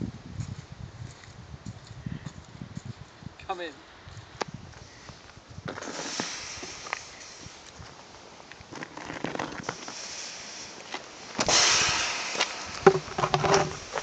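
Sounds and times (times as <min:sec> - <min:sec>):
rushing burst: 0:05.8 - 0:07.6, 0:09.7 - 0:14.0.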